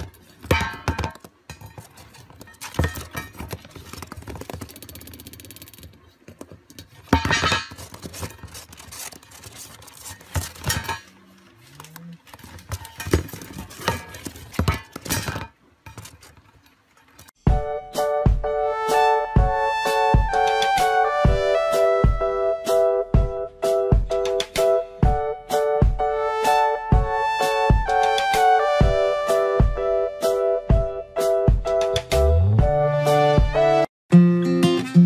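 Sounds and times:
dish knocking on cardboard: 0.0 - 4.2.

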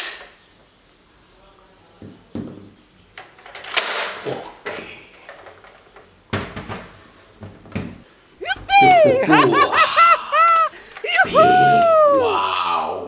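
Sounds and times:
plastic toys clicking and knocking: 3.2 - 6.6.

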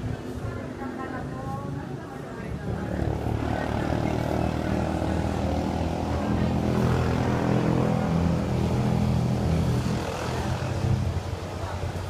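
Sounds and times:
vehicle engine droning: 2.6 - 12.0.

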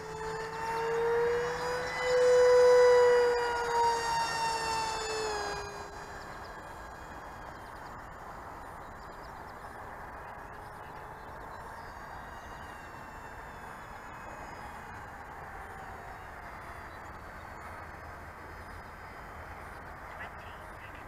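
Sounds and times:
model airplane motor whining: 0.0 - 8.4, 10.3 - 18.2.

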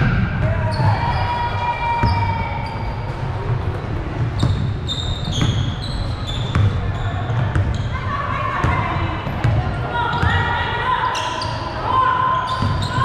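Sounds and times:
sneakers squeaking on floor: 0.0 - 13.0
basketball bouncing: 3.1 - 5.8, 6.4 - 7.8.

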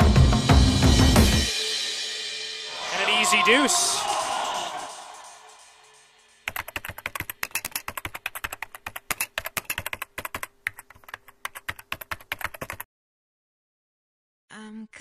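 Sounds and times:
music: 0.0 - 6.5
keyboard typing clicks: 6.5 - 12.8.

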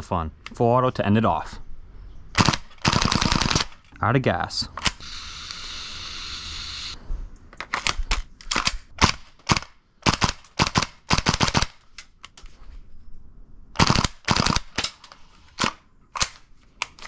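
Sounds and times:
airsoft rifle shots: 2.4 - 3.7, 13.8 - 14.7
gas hissing from a can: 5.0 - 7.0.

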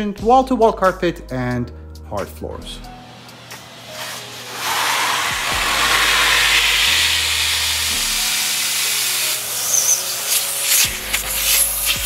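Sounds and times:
vacuum cleaner running: 3.0 - 12.0.

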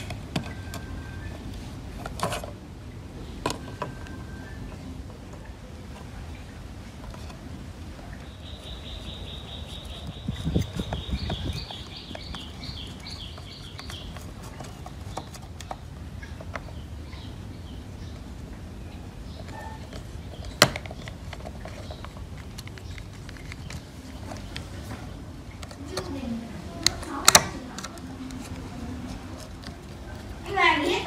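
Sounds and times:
plastic housing rubbing and knocking: 9.0 - 16.8, 19.4 - 26.1.

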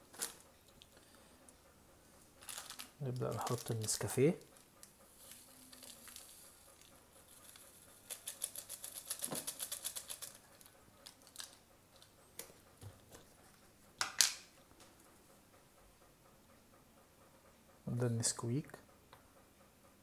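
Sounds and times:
light ticks of shaken sachet: 2.4 - 12.1.

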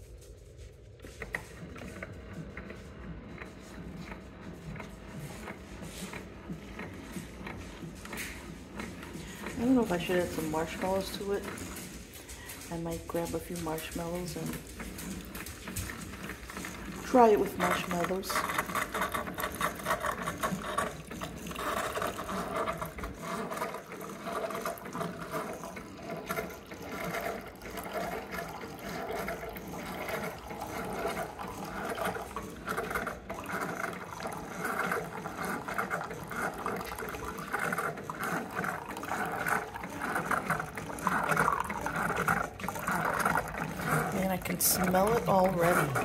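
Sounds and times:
liquid trickling into mug: 14.8 - 46.0.

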